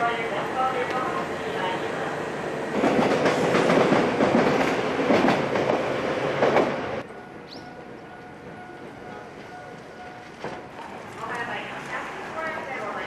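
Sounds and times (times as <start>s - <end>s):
electric train running on track: 0.0s - 13.0s.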